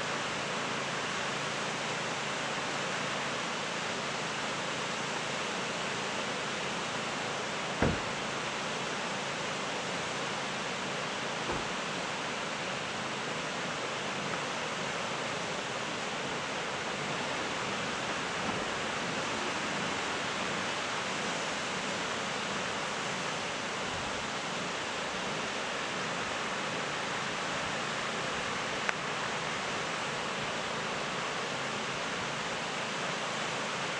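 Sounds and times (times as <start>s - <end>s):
waterfall rushing into pool: 0.0s - 33.9s.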